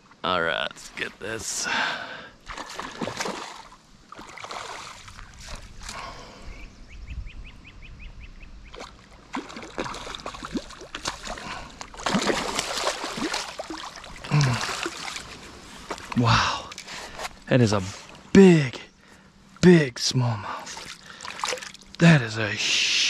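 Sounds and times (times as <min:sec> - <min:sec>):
water sloshing: 0:02.4 - 0:06.0, 0:08.8 - 0:17.4, 0:20.6 - 0:22.0
fish splashing and thrashing: 0:02.5 - 0:06.0, 0:08.8 - 0:16.9, 0:20.8 - 0:22.0.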